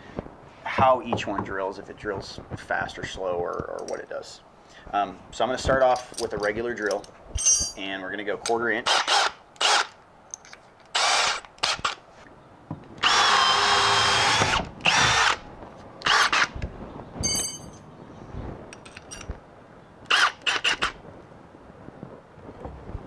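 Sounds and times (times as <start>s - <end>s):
cordless drill boring into wood: 8.9s - 9.9s, 10.9s - 12.0s, 13.0s - 15.4s, 16.0s - 16.5s, 20.1s - 20.9s.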